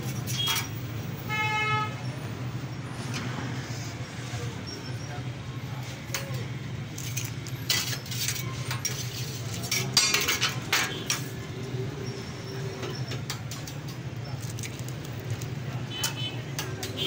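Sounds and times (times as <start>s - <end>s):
metal utensils scraping griddle: 7.0s - 11.4s.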